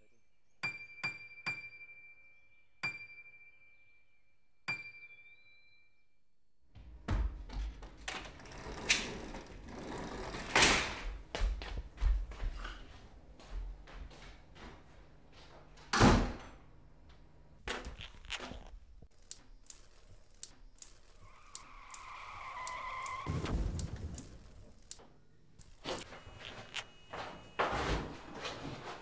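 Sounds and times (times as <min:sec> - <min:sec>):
long creak: 0:08.4 - 0:10.7, 0:17.8 - 0:18.7, 0:21.1 - 0:23.4
small clicks: 0:17.8 - 0:25.0
loud thud: 0:23.3 - 0:24.4.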